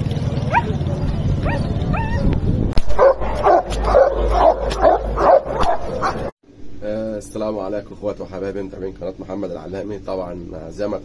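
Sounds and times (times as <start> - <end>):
large dog barking fast: 0.5 - 0.8, 2.9 - 6.3
dog whining: 1.4 - 2.4, 3.0 - 6.3.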